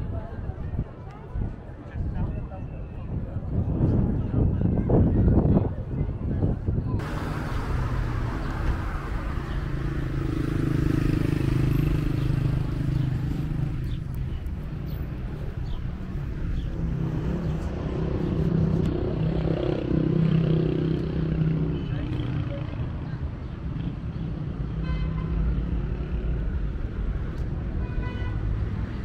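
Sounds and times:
cars driving past: 0:07.0 - 0:21.8.

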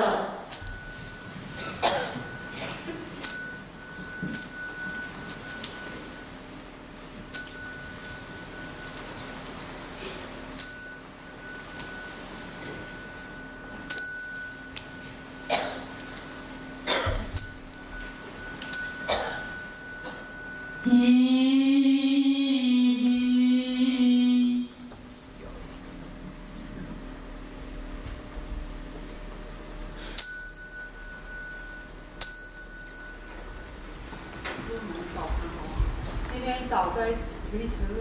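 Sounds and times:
small bell ringing: 0:00.5 - 0:09.8, 0:10.5 - 0:21.2, 0:23.0 - 0:23.8, 0:30.0 - 0:35.3.

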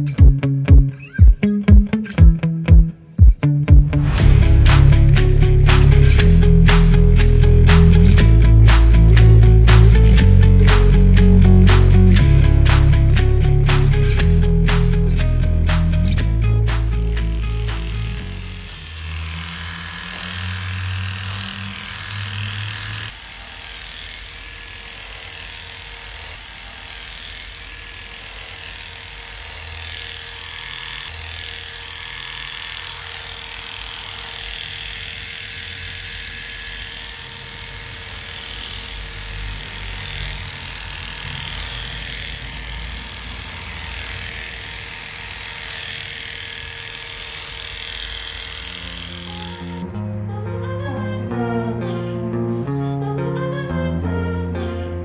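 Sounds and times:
low notes: 0:00.0 - 0:23.1
electric clipper humming: 0:00.0 - 0:51.0.

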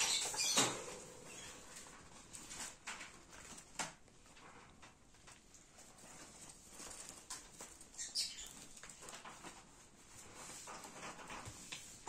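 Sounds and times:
parrot chirp: 0:00.0 - 0:01.6, 0:08.0 - 0:08.6
soft knocks and rustles: 0:00.3 - 0:12.0.

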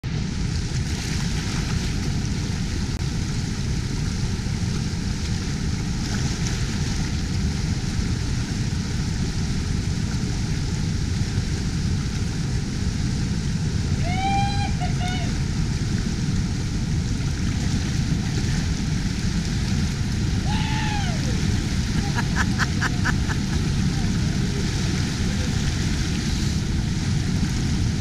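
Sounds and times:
whitewater rushing: 0:13.3 - 0:28.0.

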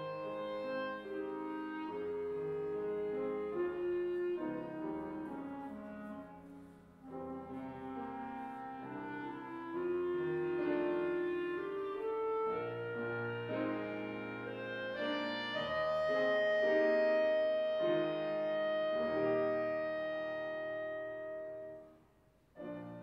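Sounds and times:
clarinet melody: 0:00.0 - 0:23.0
piano accompaniment: 0:00.0 - 0:23.0.

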